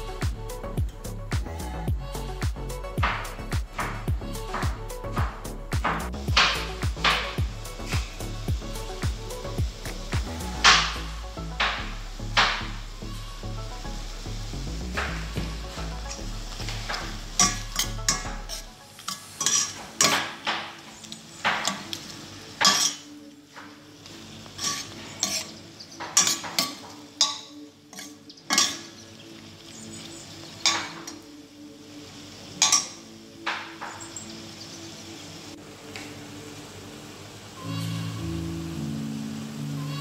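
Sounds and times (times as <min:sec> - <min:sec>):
faint background music: 0:00.0 - 0:40.0
simmering pot hiss: 0:00.0 - 0:40.0
metal spoon scraping a pot: 0:17.4 - 0:20.2, 0:22.6 - 0:23.1, 0:24.6 - 0:25.6, 0:26.2 - 0:29.0.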